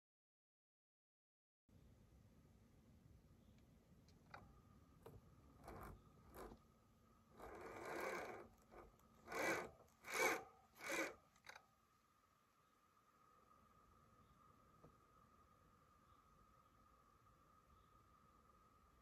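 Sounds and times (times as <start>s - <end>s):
faint high whine: 1.7s - 19.0s
electric motor whirring: 5.6s - 6.6s, 7.4s - 11.6s.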